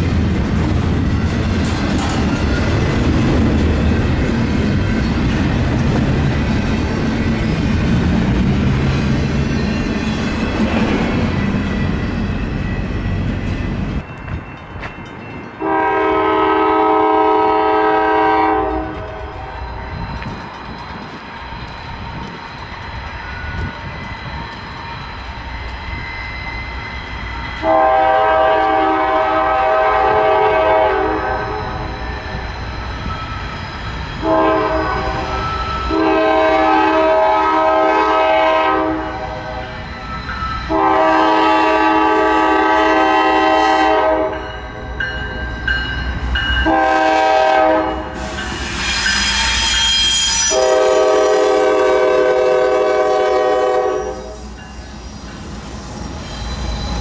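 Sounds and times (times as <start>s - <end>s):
train rumble: 0.0s - 57.0s
locomotive horn blasts: 15.6s - 19.5s, 27.6s - 31.6s, 34.2s - 35.2s, 35.9s - 39.6s, 40.7s - 44.5s, 46.6s - 48.2s, 50.2s - 54.4s.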